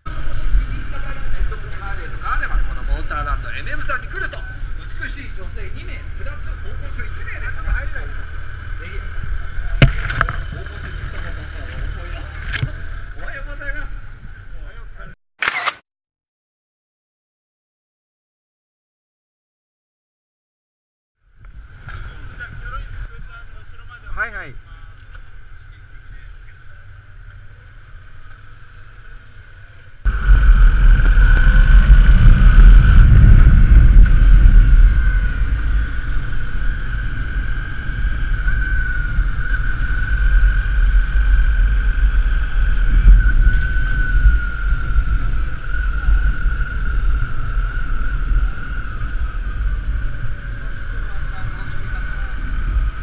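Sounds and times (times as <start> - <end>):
wind rush on microphone: 0.0 - 14.7, 21.3 - 24.8, 30.0 - 53.0
motorcycle engine: 0.0 - 15.0, 21.3 - 53.0
steady whine: 0.0 - 15.6, 21.2 - 53.0.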